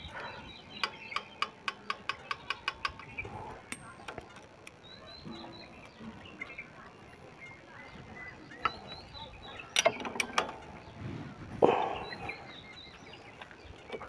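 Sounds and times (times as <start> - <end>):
metal tools clicking on engine parts: 0.0 - 6.0, 8.4 - 10.9.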